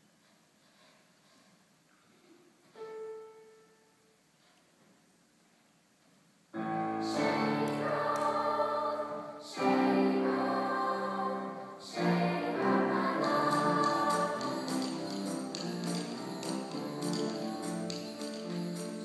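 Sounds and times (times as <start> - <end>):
children's choir singing: 6.6 - 19.0
piano accompaniment: 6.6 - 19.0.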